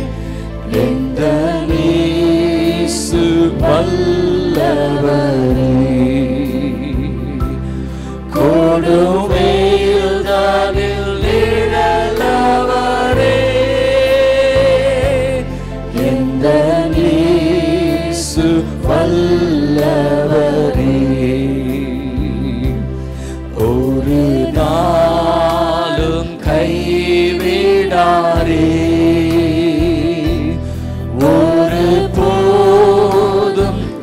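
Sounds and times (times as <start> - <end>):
backing music with a beat: 8.3 - 30.5.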